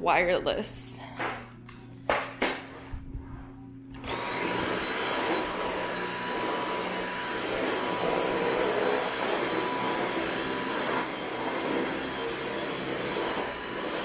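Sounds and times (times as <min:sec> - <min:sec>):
cordless vacuum running: 0:03.9 - 0:14.0.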